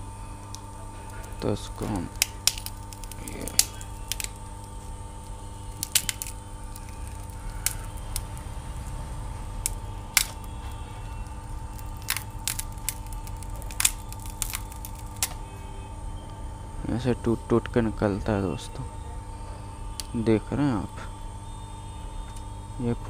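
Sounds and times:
steady hum: 0.0 - 23.0
glass cracking and clicking: 0.5 - 4.8, 5.7 - 8.5, 9.6 - 15.4.

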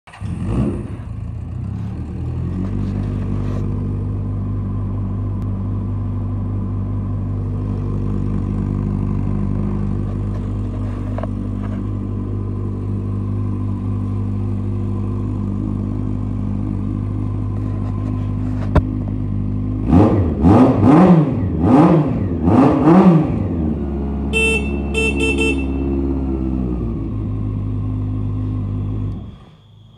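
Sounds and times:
motorcycle engine idling and revving: 0.0 - 29.9
motorcycle horn: 24.3 - 26.2.

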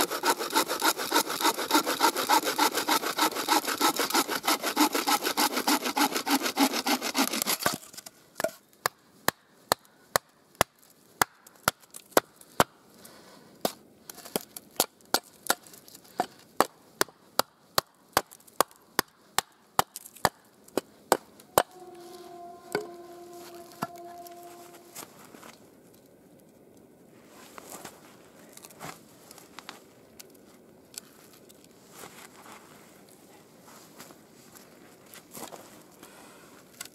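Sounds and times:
bow saw cutting a log: 0.0 - 7.9, 21.5 - 25.1.

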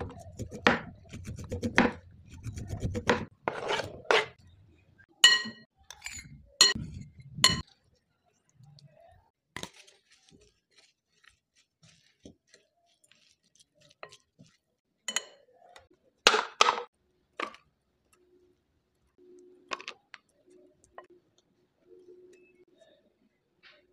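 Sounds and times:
spoon clinking against glass bowl: 5.2 - 6.8, 15.1 - 15.4.

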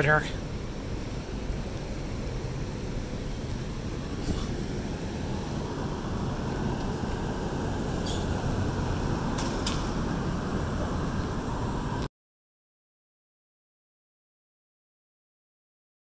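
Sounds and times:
city street traffic rumble: 0.0 - 12.1.

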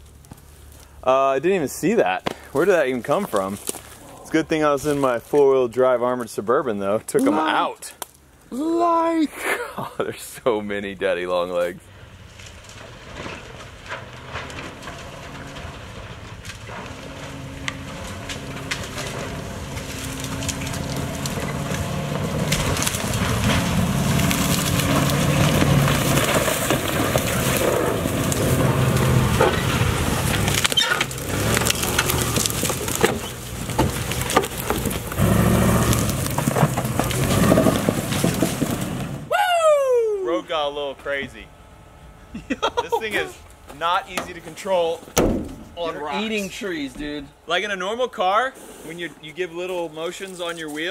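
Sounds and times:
branches cracking and snapping: 2.2 - 4.2, 7.2 - 8.3, 12.2 - 39.3
truck engine running: 11.8 - 39.2.

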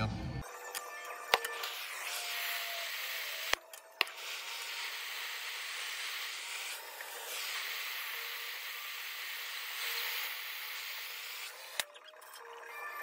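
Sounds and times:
torch flame hissing: 1.6 - 11.5.

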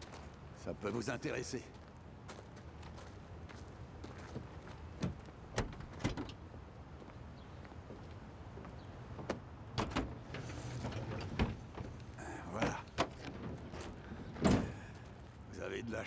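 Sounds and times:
truck bed cover opening: 9.7 - 14.7.

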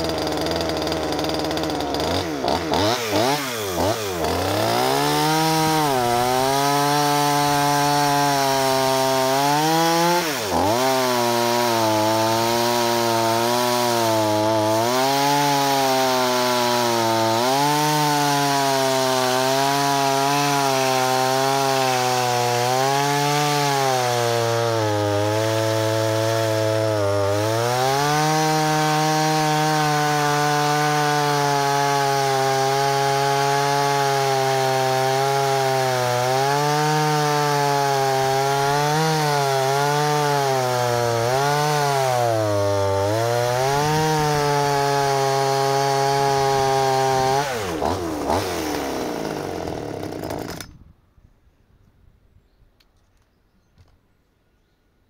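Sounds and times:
chainsaw engine wavering idle: 0.0 - 41.5, 42.3 - 50.7.

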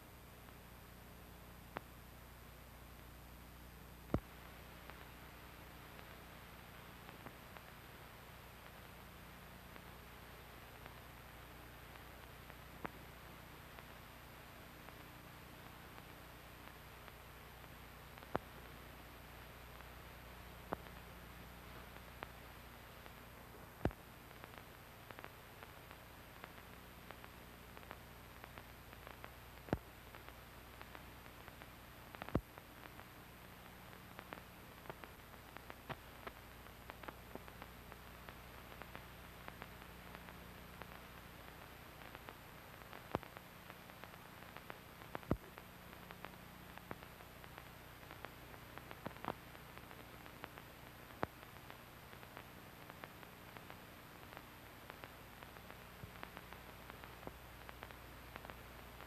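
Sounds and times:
film hiss: 0.0 - 59.0
film clicks and pops: 4.0 - 5.2, 20.6 - 21.1.

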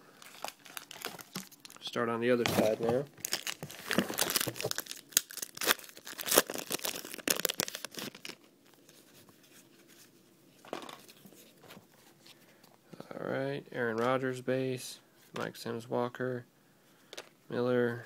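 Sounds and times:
wrapper crackling: 0.2 - 9.0.

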